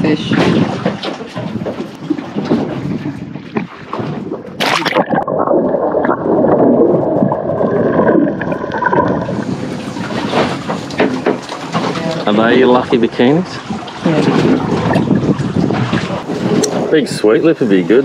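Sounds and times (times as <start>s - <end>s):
water sloshing and gurgling: 0.0s - 18.0s
sharp splash: 3.6s - 7.0s.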